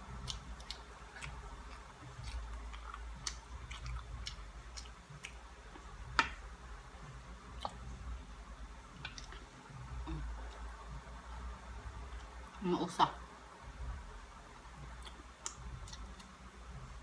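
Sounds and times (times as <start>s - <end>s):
person chewing banana: 0.0s - 6.2s, 7.4s - 8.1s, 14.8s - 16.5s
wet mouth clicks and smacks: 15.0s - 16.4s.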